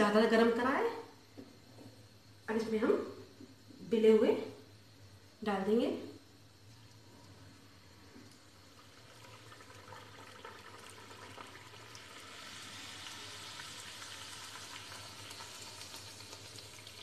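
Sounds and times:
dough frying in hot oil: 0:06.2 - 0:17.0.

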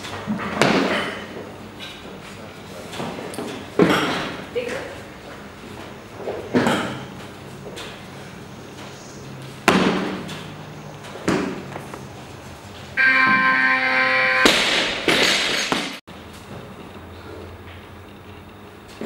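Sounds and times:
steady electronic tone: 0:13.0 - 0:14.7
barbell crashing onto platform: 0:14.4 - 0:16.0.

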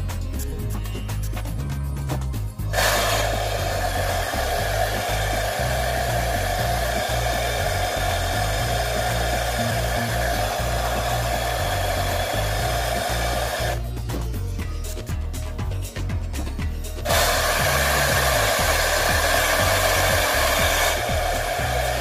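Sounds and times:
hair dryer blowing: 0:02.7 - 0:13.9, 0:17.0 - 0:22.0.

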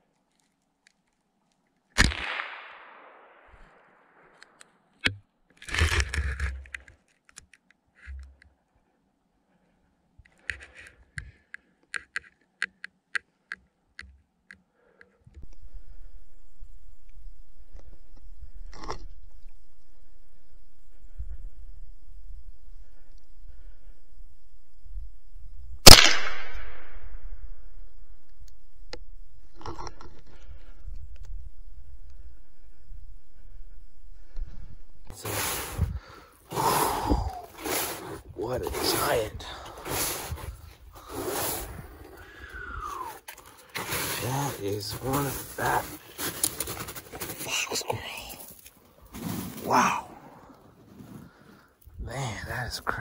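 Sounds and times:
rifle shot with echo: 0:02.0 - 0:04.3, 0:25.8 - 0:27.4
sharp irregular clicks: 0:10.3 - 0:15.6.

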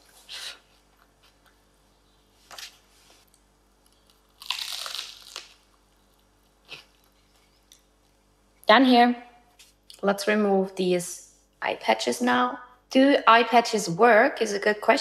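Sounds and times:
crunchy chewing: 0:03.2 - 0:08.3.

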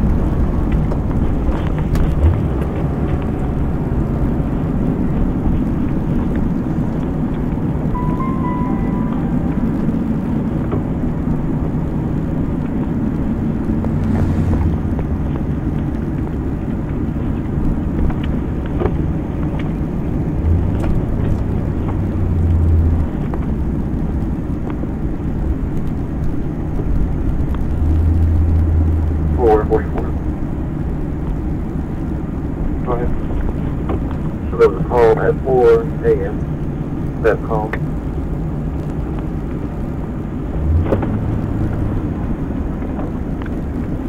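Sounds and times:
low hum: 0:00.0 - 0:34.8
car engine and cabin noise: 0:00.0 - 0:44.0
brief beep: 0:08.0 - 0:09.8.

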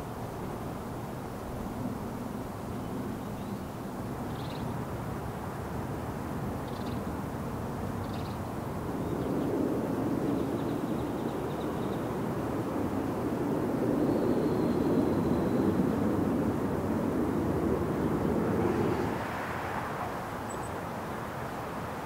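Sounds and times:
traffic rumble: 0:07.2 - 0:22.0.

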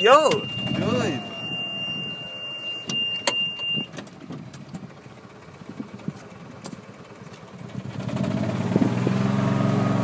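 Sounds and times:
high-pitched tone: 0:00.0 - 0:04.0
golf cart running: 0:00.0 - 0:09.4.

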